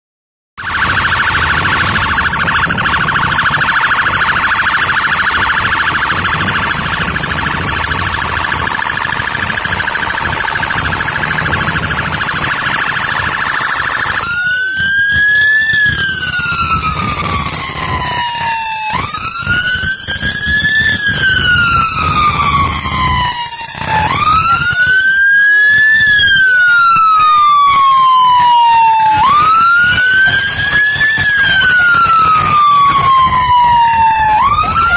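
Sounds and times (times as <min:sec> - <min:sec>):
electronic police siren: 0:00.6 - 0:34.9.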